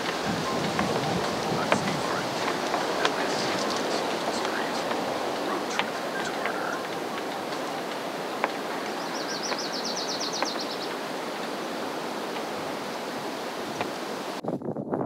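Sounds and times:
faint clicks: 0.0s - 14.4s
outdoor rushing noise: 0.0s - 14.6s
bird singing a high trill: 8.6s - 11.7s.

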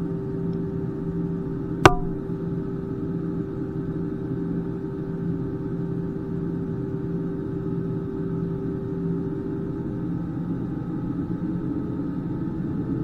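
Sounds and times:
sharp click with ring: 1.8s - 2.3s
steady tone: 1.8s - 2.3s.

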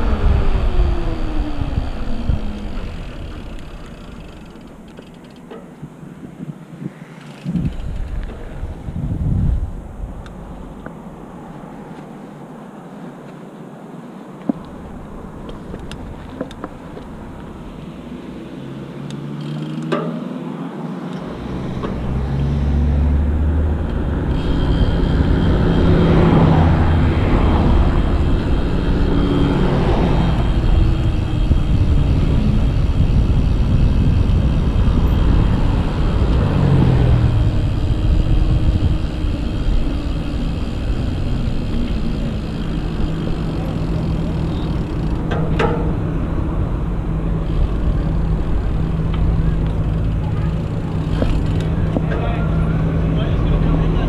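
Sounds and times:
wind rushing over microphone: 0.0s - 3.9s, 5.8s - 11.9s, 21.2s - 44.2s
bike tyre noise: 0.0s - 20.4s, 21.1s - 54.0s
cars passing: 0.0s - 54.0s.

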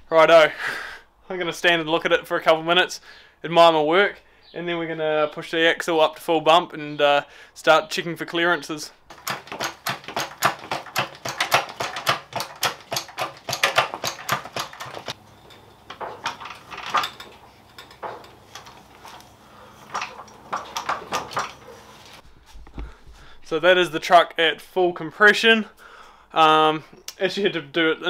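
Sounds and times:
floor jack metallic clicks: 9.1s - 22.9s.

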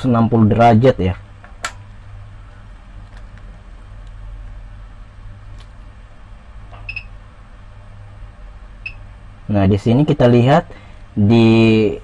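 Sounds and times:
power supply low hum: 0.0s - 12.0s.

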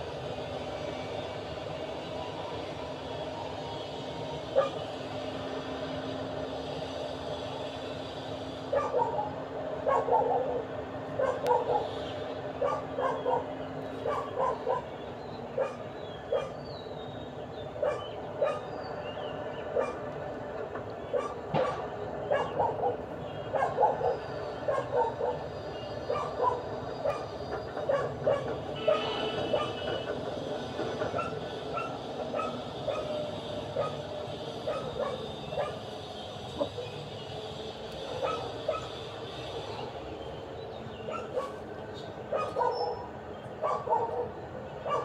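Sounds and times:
dogs yapping: 8.7s - 10.6s, 11.2s - 11.9s, 12.6s - 14.9s, 15.6s - 16.6s, 17.8s - 18.7s, 19.8s - 20.1s, 21.1s - 29.8s, 31.1s - 34.1s, 34.7s - 35.8s, 38.2s - 38.9s, 41.1s - 41.6s, 42.3s - 45.0s.

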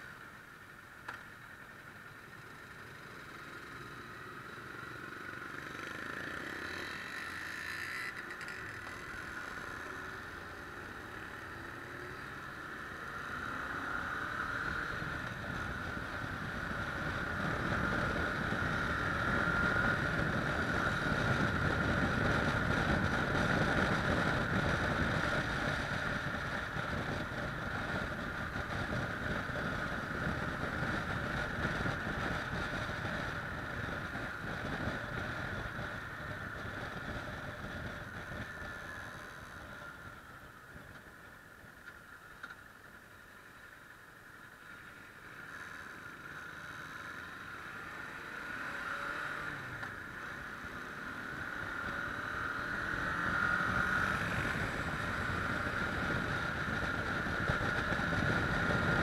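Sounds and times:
wind noise on microphone: 15.0s - 38.8s, 52.8s - 59.0s
motorcycle engine revving: 45.5s - 59.0s.

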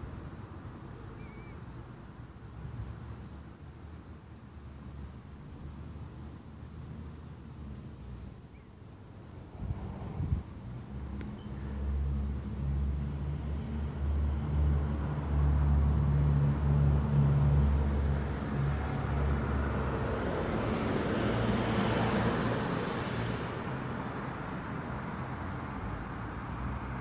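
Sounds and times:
vehicle passing by: 9.5s - 27.0s.

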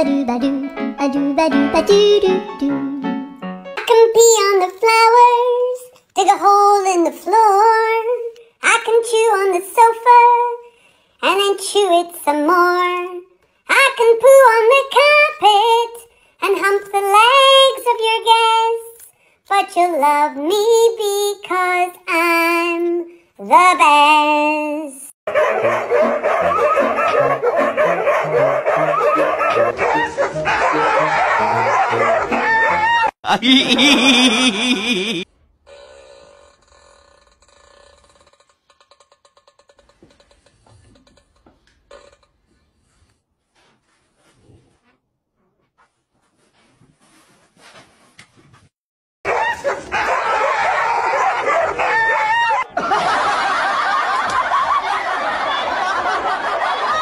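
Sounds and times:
dogs barking and yowling: 25.3s - 33.2s, 49.3s - 57.0s.

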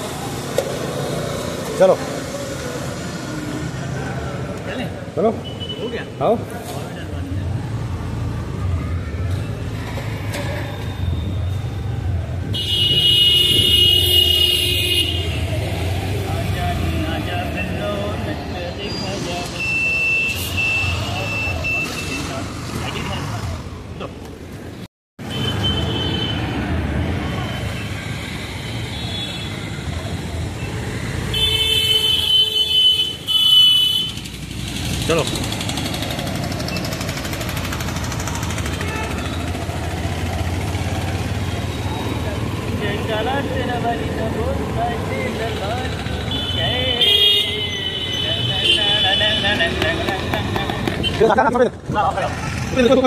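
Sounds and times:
road traffic rumble: 0.0s - 53.0s
vehicle horn honking: 12.6s - 15.5s, 46.3s - 49.6s.

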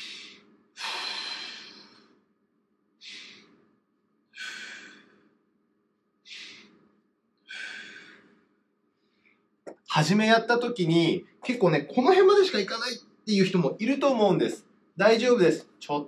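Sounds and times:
man breathing deeply: 0.0s - 2.2s, 3.0s - 5.5s, 6.2s - 9.4s.

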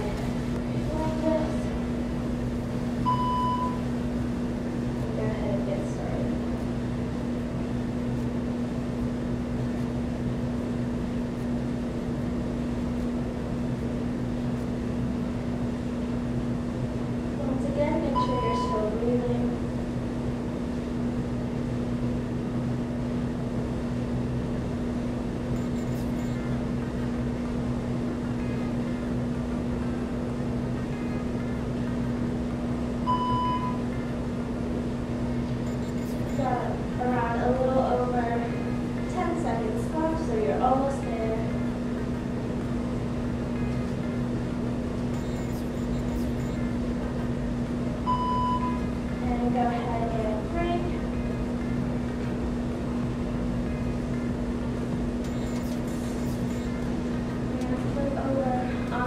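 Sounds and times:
mechanical hum: 0.0s - 59.0s
short electronic beep: 33.1s - 33.8s, 45.1s - 46.6s.

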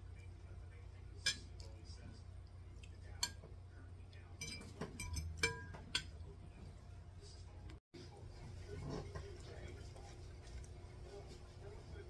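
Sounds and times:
metal fork clinking on plate: 4.4s - 6.2s.

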